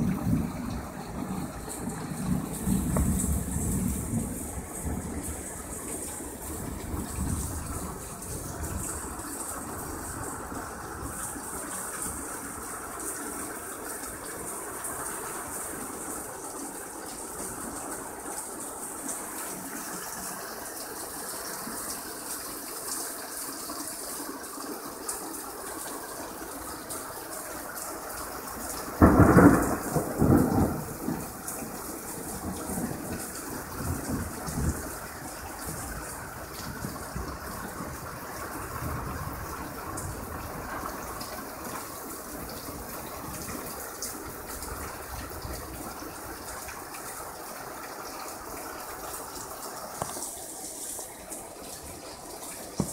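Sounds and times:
thunder rumbling: 0:00.0 - 0:13.0, 0:28.9 - 0:46.1
heavy rain pouring: 0:00.0 - 0:52.9.

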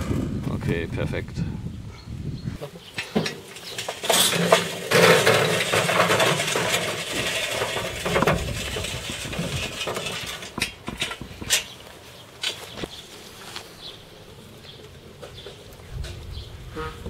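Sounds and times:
charcoal clattering onto metal tray: 0:02.8 - 0:11.8.

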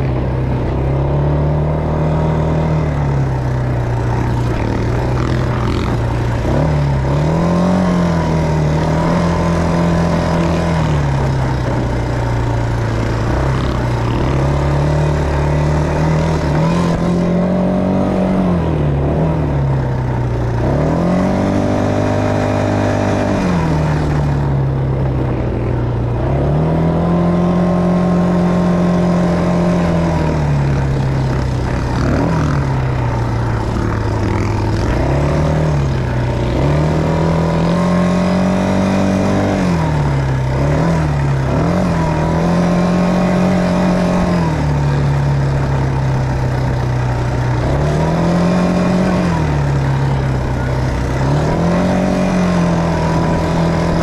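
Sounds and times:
atv engine revving: 0:00.0 - 0:54.0.

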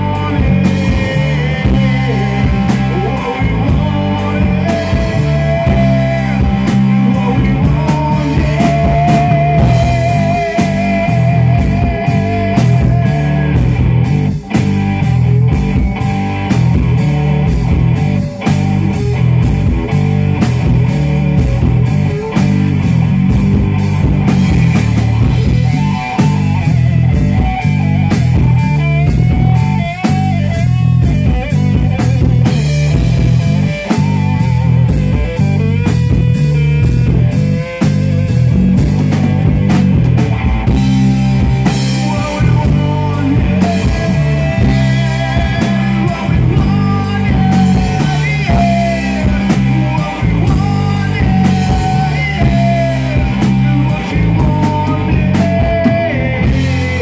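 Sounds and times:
live rock band playing: 0:00.0 - 0:57.0.

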